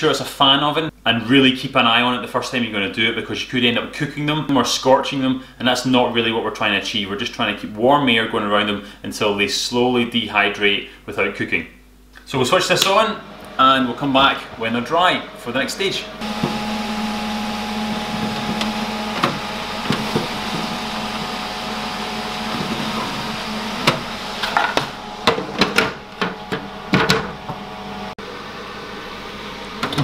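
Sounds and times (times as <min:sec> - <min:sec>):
food dehydrator fan hum: 0:12.1 - 0:30.0.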